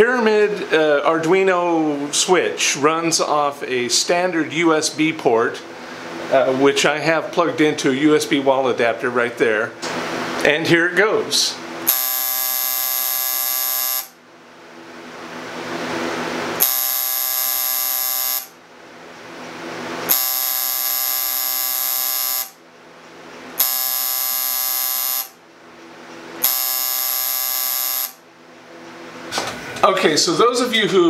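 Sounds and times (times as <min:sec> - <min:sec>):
tattoo machine buzzing: 0:11.8 - 0:14.2, 0:16.6 - 0:18.6, 0:20.0 - 0:22.6, 0:23.6 - 0:25.4, 0:26.4 - 0:28.2.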